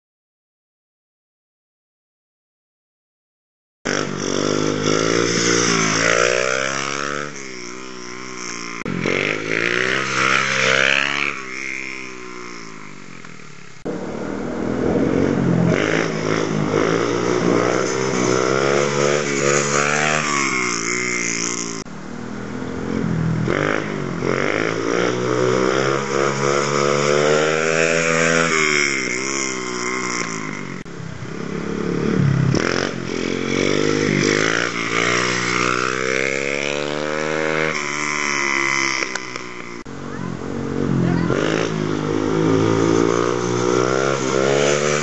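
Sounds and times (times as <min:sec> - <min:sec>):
dirt bike engine revving: 0:03.9 - 0:22.0, 0:22.6 - 0:45.0.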